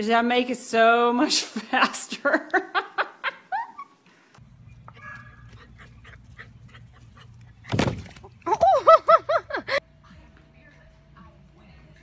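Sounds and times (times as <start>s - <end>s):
steady low hum: 4.3s - 12.0s.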